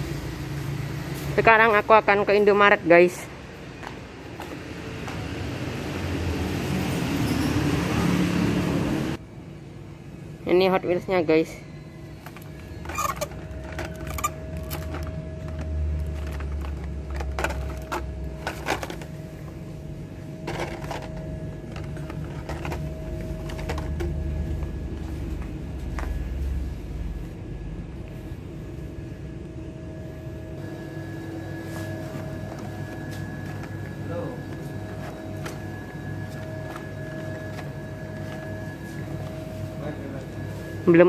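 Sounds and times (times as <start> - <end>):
blister packs clicking and rattling: 12.2 - 19.3, 20.4 - 24.5.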